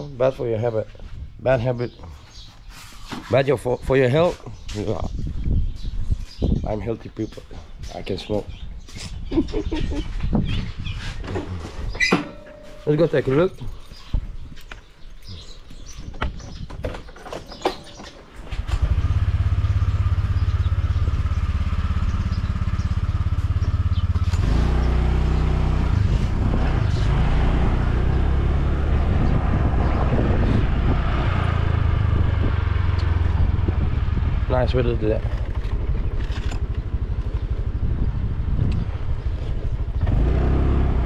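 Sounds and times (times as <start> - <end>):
motorcycle engine: 17.4 - 41.0
handling clicks and knocks: 35.2 - 37.5.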